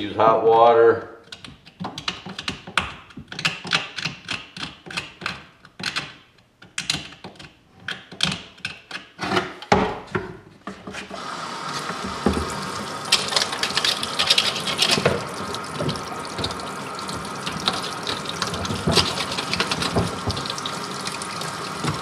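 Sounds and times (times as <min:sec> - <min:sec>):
tap water running: 0:11.1 - 0:22.0
knife scraping bone: 0:13.2 - 0:15.0.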